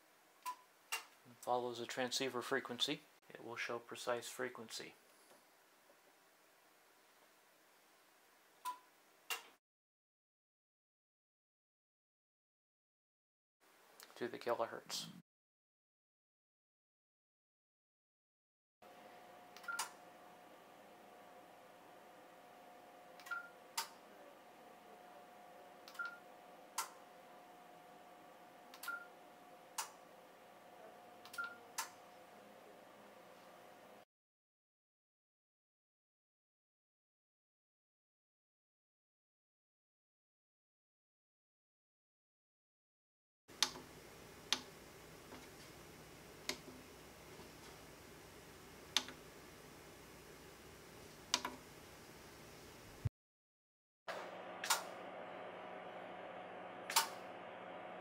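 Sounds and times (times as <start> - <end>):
sharp relay click: 54.6 - 54.9, 56.9 - 57.2.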